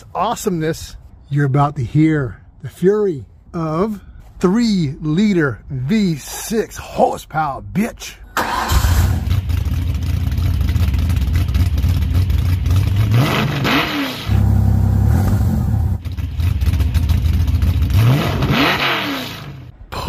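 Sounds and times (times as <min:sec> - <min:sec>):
truck engine idling and revving: 0:08.4 - 0:20.0.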